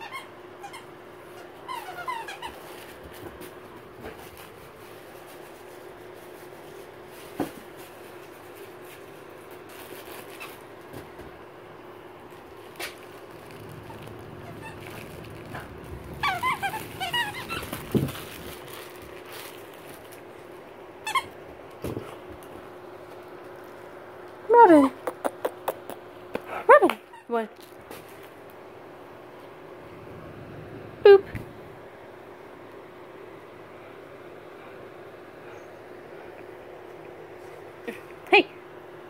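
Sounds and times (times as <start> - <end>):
squeaky toy squeaking: 0.0 - 0.9, 1.6 - 2.6, 13.8 - 17.9, 21.0 - 21.3.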